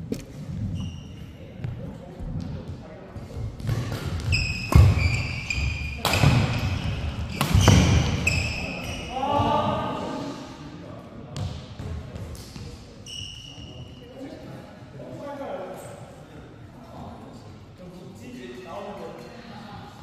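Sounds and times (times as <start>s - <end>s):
shoes squeaking on floor: 0.3s - 1.7s, 3.7s - 9.6s, 12.6s - 14.3s
rackets hitting shuttlecock: 3.6s - 8.9s.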